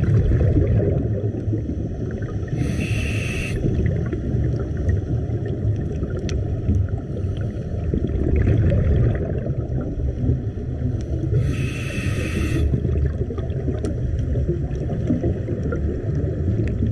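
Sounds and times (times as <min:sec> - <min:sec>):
underwater rumble and bubbles: 0:00.0 - 0:16.9
scuba regulator hiss: 0:02.5 - 0:03.7, 0:11.3 - 0:12.8.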